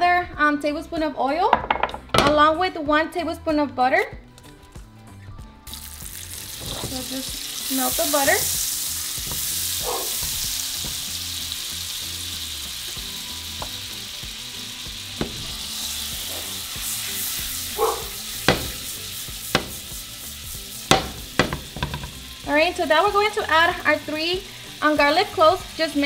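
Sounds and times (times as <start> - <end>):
butter sizzling in frying pan: 5.6 - 26.0.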